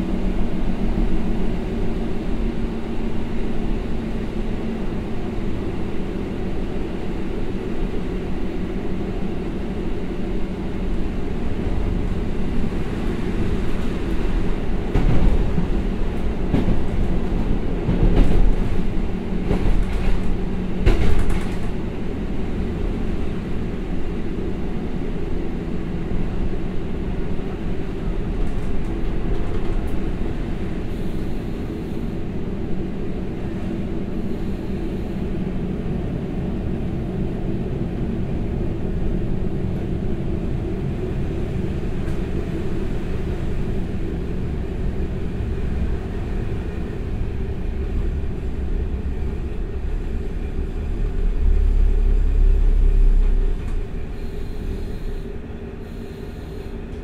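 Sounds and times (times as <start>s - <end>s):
train running rumble: 0.0s - 57.0s
knocks and clatter: 19.5s - 21.7s.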